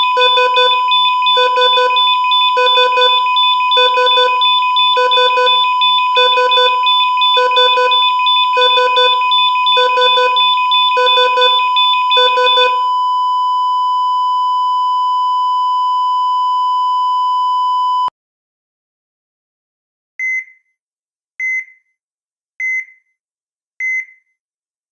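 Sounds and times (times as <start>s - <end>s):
steady high tone: 0.0s - 12.8s
electronic alarm beeping: 0.0s - 13.5s.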